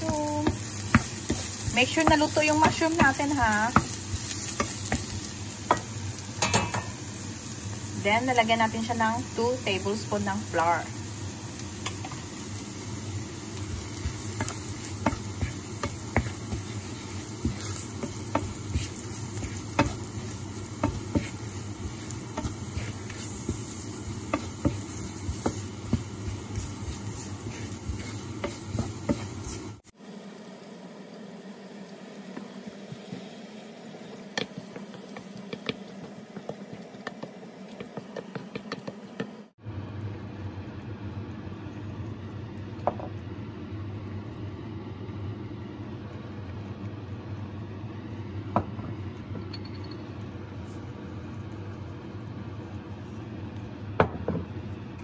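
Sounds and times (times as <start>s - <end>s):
mushrooms sizzling in a pan: 0.0s - 38.8s
wooden spoon scraping a pan: 13.6s - 29.8s.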